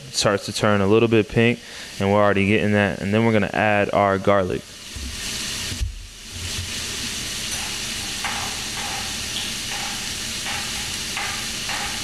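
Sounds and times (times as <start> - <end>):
shrimp sizzling in a frying pan: 3.5 - 12.0.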